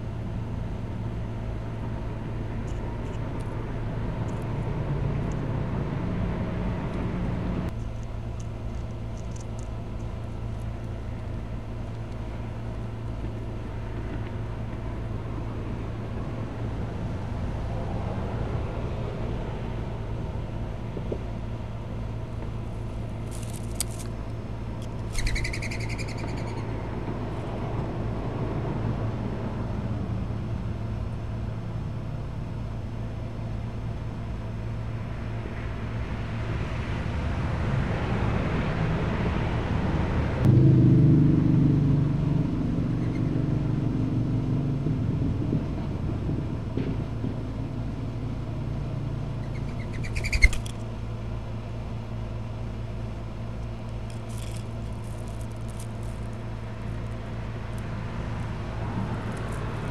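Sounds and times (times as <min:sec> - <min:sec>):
faint outdoor rumble: 0:00.0 - 0:59.9
steady low hum: 0:00.0 - 0:59.9
short high bird chirps: 0:25.1 - 0:26.6, 0:49.4 - 0:50.7.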